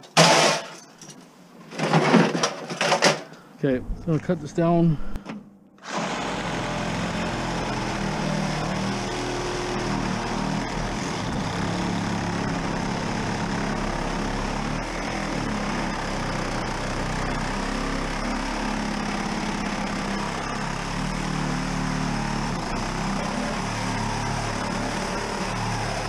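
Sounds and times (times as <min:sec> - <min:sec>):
motor running: 0:05.8 - 0:26.0.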